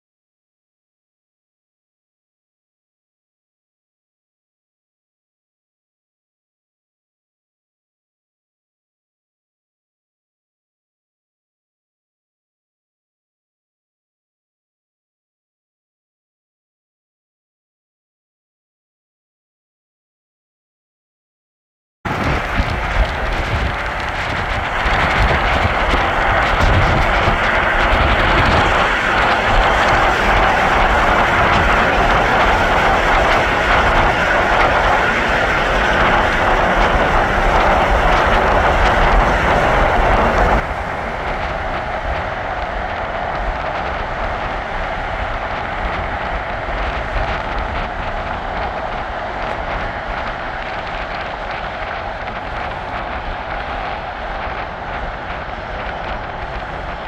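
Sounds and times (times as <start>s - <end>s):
car road and wind noise: 22.1s - 57.0s.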